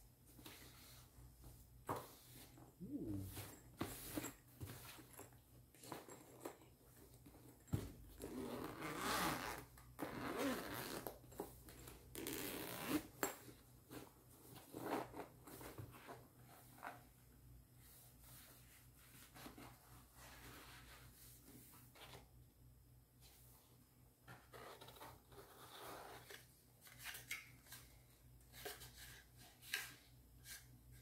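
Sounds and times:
zipper being pulled: 8.2s - 11.1s, 12.1s - 13.2s.

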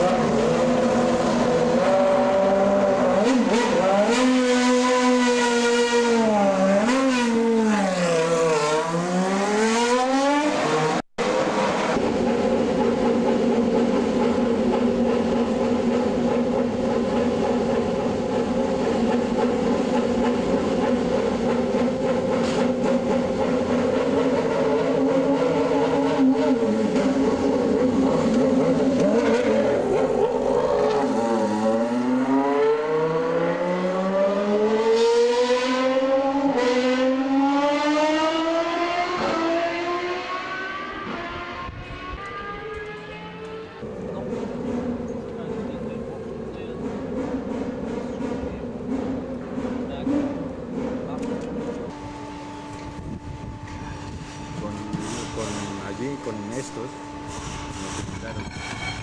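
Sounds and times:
racing car engine revving: 0.0s - 57.1s
engine running at steady note: 50.2s - 58.4s.

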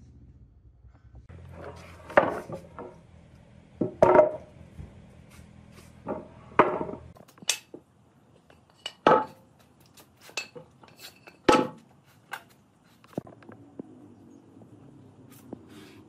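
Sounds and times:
wooden boards knocking on concrete: 3.8s - 4.5s, 6.0s - 7.2s.

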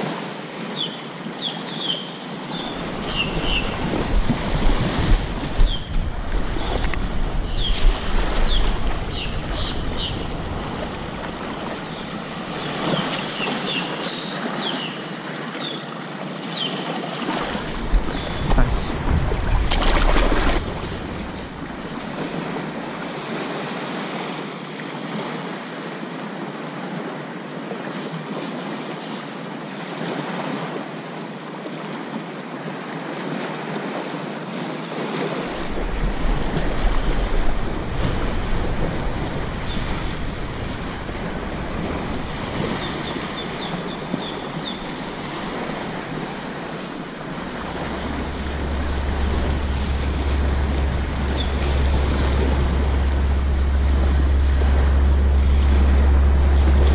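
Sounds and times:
small waves lapping on beach: 0.0s - 56.9s
wind rumbling on microphone: 2.4s - 14.7s, 17.2s - 24.4s, 35.3s - 56.9s.

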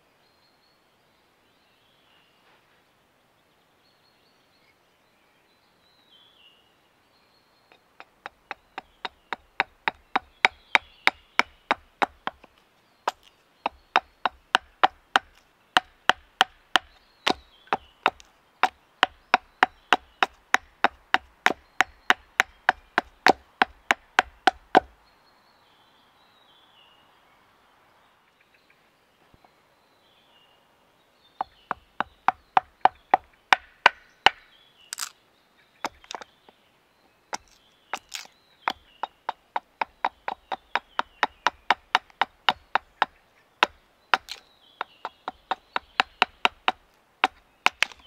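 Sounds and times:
birds chirping: 0.0s - 48.0s
hatchet splitting wooden stick: 7.7s - 12.5s, 13.1s - 24.9s, 31.7s - 35.1s, 35.9s - 36.2s, 37.4s - 44.4s, 45.5s - 48.0s.

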